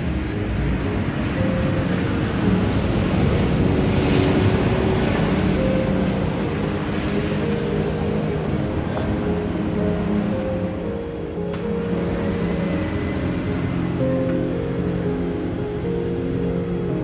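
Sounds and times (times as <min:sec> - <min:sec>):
wind on microphone: 0:00.0 - 0:10.3
faint held musical notes: 0:00.0 - 0:17.0.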